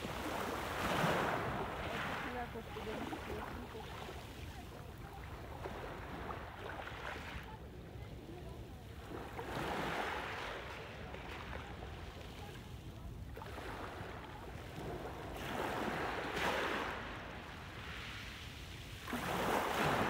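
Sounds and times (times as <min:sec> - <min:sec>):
waves washing up pebble beach: 0:00.0 - 0:06.6, 0:15.2 - 0:20.0.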